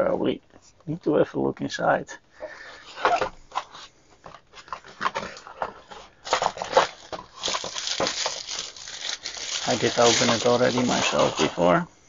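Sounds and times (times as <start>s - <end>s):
plastic bag crinkling: 6.2s - 11.7s.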